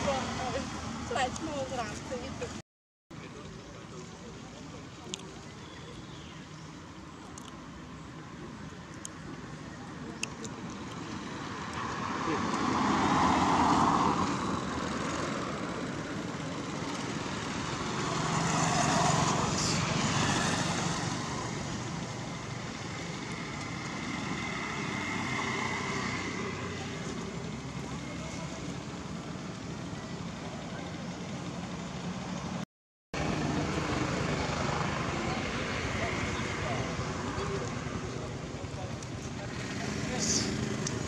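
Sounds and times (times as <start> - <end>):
road traffic: 0.0 - 41.0
vehicle passing: 11.2 - 29.3, 33.2 - 41.0.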